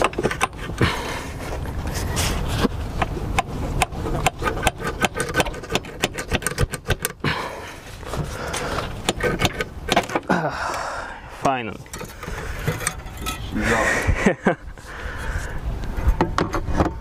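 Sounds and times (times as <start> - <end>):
hand tools clicking on metal: 3.0 - 7.2.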